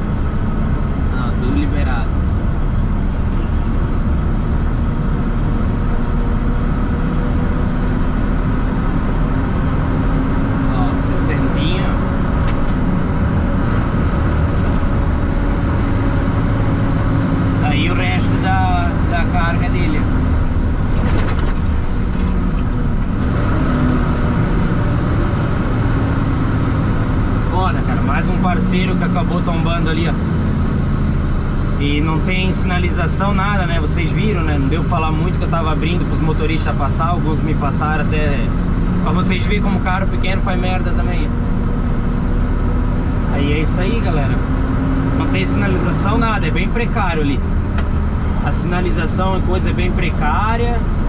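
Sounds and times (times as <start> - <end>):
vehicle engine drone: 0.0 - 51.0
brief clatter: 21.0 - 22.4.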